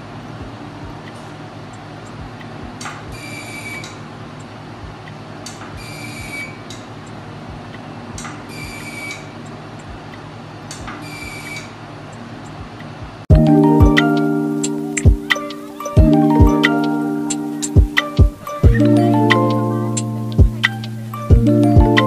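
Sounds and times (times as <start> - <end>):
chime music: 13.3 - 22.0
laser machine humming: 13.4 - 22.0.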